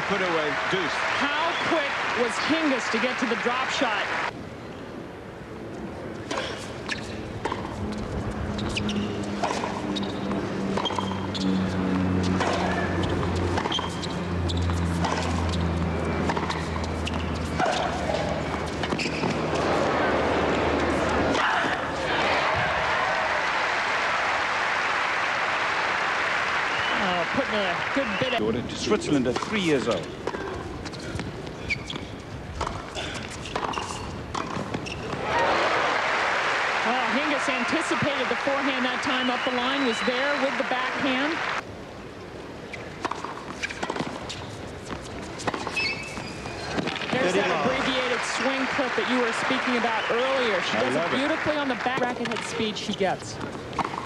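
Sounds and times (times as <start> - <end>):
crowd applause: 0.0 - 4.3, 22.1 - 28.4, 35.2 - 41.6, 47.2 - 52.0
racquets striking tennis ball: 6.2 - 22.8, 29.2 - 35.4, 42.8 - 54.0
ball bouncing: 31.9 - 35.2.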